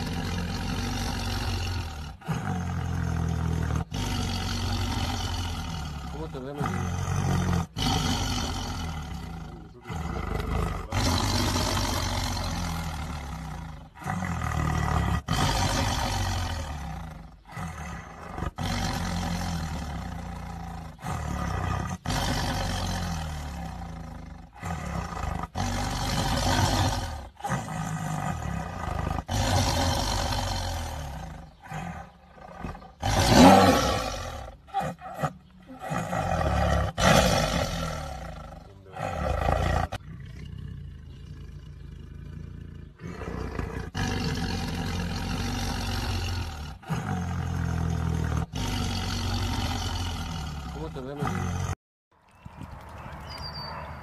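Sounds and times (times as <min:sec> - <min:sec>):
tiger roaring: 0:00.0 - 0:51.8.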